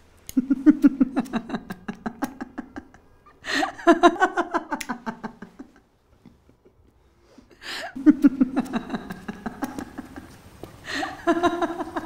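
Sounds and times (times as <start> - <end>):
woman laughing: 0.3 - 5.8, 7.7 - 12.0.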